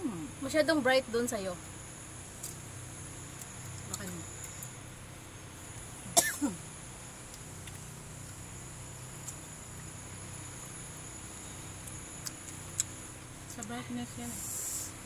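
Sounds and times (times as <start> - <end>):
faint high whine: 0.0 - 15.0
cough-like vocal burst: 6.2 - 6.6.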